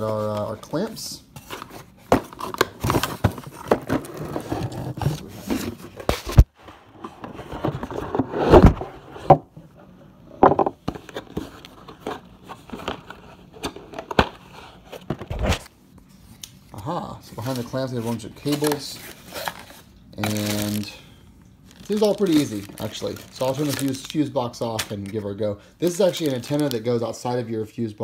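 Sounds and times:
cardboard box rustling and scraping: 1.4 - 9.4.

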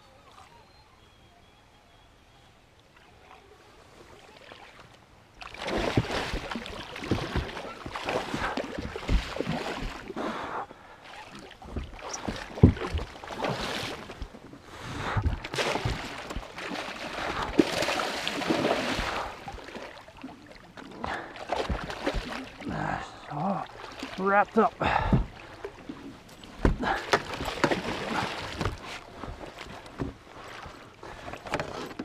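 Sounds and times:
fish splashing at the surface: 5.4 - 10.1, 15.3 - 20.3, 21.0 - 22.8
knocks against aluminium boat: 26.6 - 27.8.

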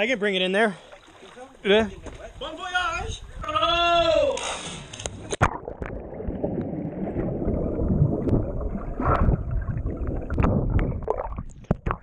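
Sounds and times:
muffled underwater rush: 5.2 - 12.0
air bubbles crackling: 5.4 - 12.0
sharp clicks of bubbles: 5.4 - 12.0.

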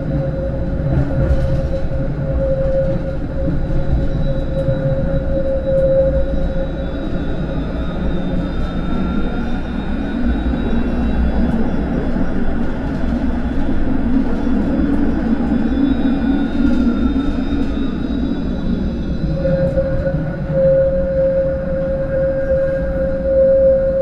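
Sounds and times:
tram wheels rumbling on rail: 0.0 - 24.0
faint high tones: 17.8 - 24.0.

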